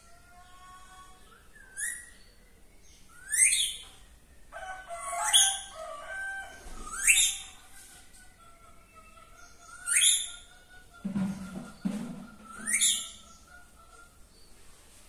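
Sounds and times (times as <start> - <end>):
whistled bird notes: 1.2 - 4.0, 6.7 - 7.6, 9.0 - 14.2
parakeet screeching: 5.0 - 7.5, 9.8 - 10.5.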